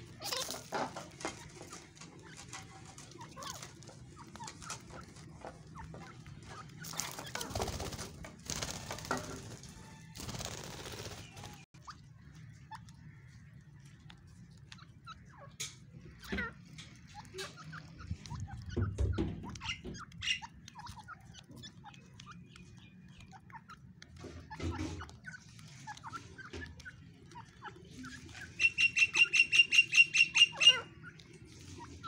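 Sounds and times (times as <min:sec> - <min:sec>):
beaks pecking seed on concrete: 0:00.0 - 0:32.0.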